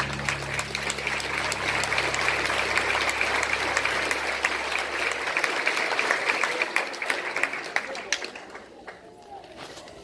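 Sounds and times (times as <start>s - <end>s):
low held music note: 0.0s - 5.4s
audience applauding: 0.0s - 9.0s.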